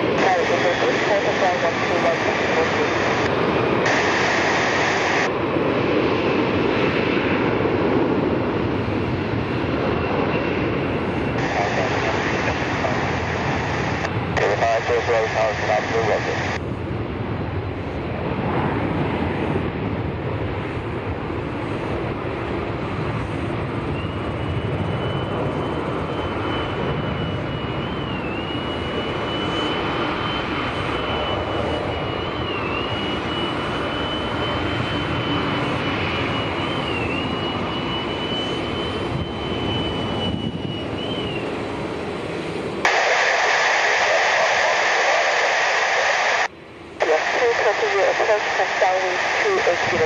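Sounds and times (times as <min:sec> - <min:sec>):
jet engines running: 0:00.0 - 0:50.0.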